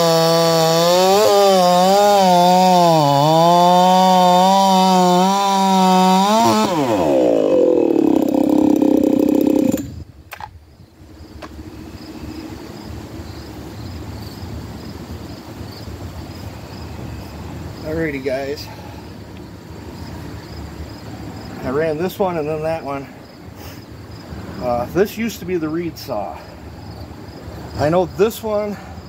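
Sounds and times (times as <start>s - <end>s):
chainsaw cutting through log: 0.0s - 10.0s
chainsaw rough idle: 0.0s - 10.0s.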